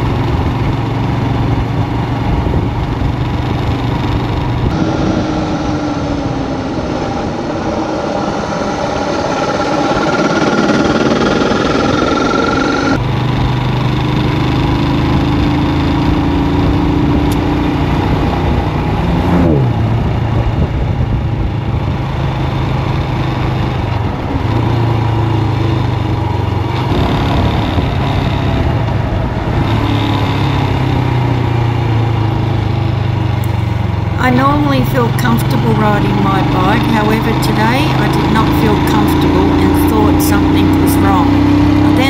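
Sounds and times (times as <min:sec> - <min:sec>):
motorcycle engine cruising: 0:00.0 - 0:42.0
wind rushing: 0:04.0 - 0:13.0, 0:18.0 - 0:21.9.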